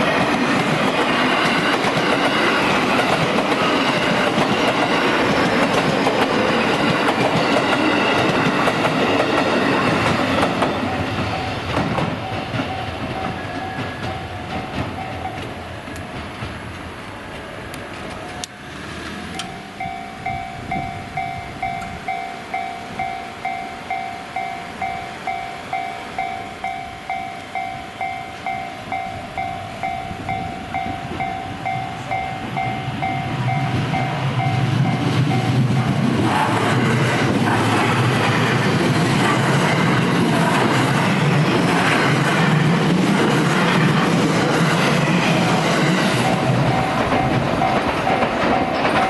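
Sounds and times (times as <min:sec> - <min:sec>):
train passing: 0:00.0 - 0:49.0
level crossing bell ringing: 0:19.5 - 0:34.6.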